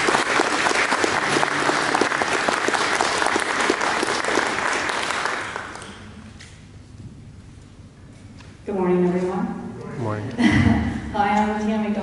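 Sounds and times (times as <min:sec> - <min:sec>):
congregation applauding: 0:00.0 - 0:06.2.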